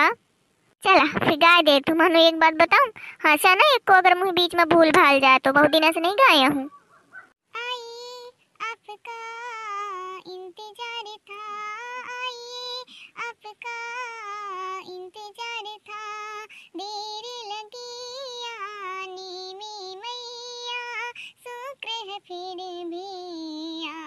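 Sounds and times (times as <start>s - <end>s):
woman singing devotional song: 7.6s - 24.0s.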